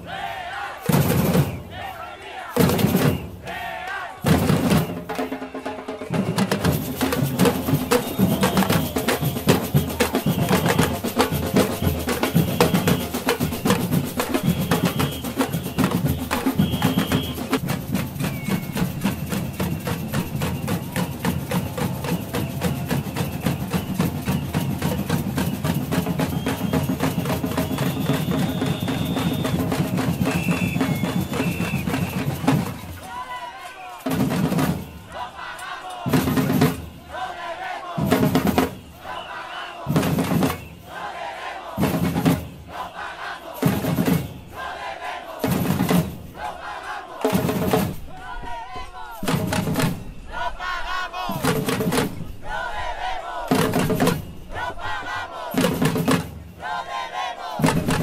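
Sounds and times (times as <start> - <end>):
crowd chanting: 0.0 - 58.0
drumming: 0.0 - 58.0.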